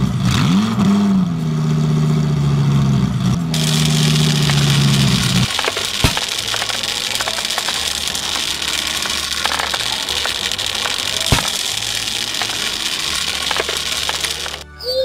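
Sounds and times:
small balls clattering onto toy truck: 0:03.6 - 0:14.8.

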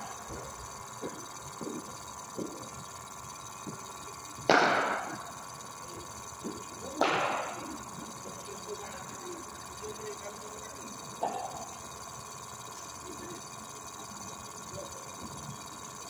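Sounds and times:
cricket ball impacts: 0:04.5 - 0:05.0.

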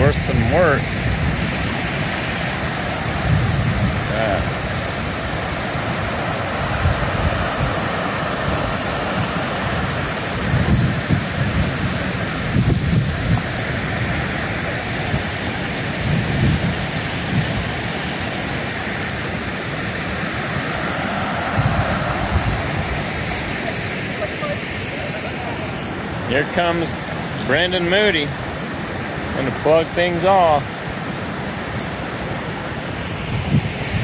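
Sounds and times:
flood water rushing: 0:00.0 - 0:34.0
low rumbling surges: 0:19.8 - 0:28.3.

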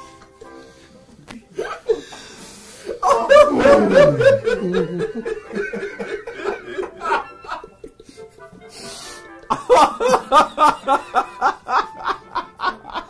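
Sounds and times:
men laughing: 0:02.9 - 0:08.4, 0:09.5 - 0:13.0.

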